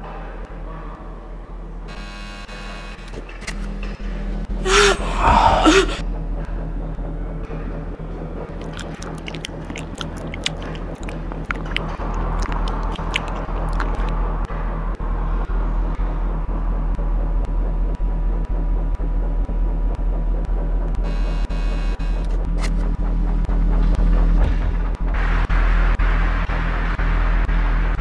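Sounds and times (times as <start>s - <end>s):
clicks and crackles: 8.6s - 14.1s.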